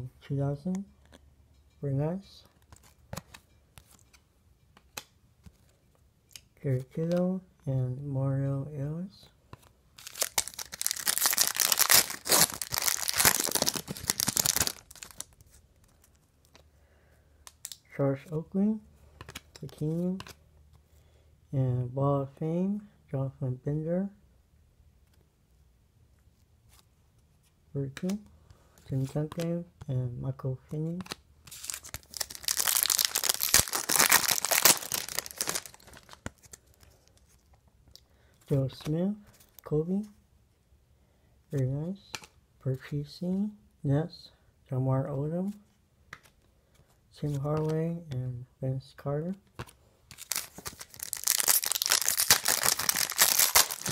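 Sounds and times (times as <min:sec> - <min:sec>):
card pack wrapper tearing and crinkling: 0:10.0 - 0:16.6, 0:31.0 - 0:37.4, 0:49.6 - 0:53.9.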